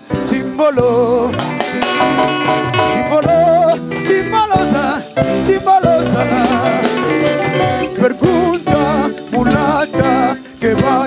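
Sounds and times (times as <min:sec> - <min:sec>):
guitar: 0:00.0 - 0:11.0
steady percussion: 0:01.3 - 0:11.0
wavering melody line: 0:06.1 - 0:09.2.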